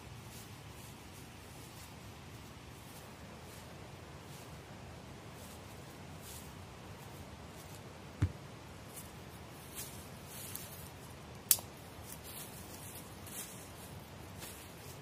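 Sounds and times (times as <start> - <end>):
rustling in dry leaves: 0.0 - 15.0
dull thud: 8.2 - 8.4.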